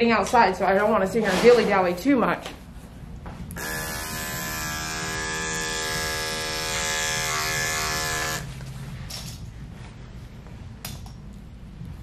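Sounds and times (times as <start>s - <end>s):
electric clipper buzzing: 3.5s - 8.5s.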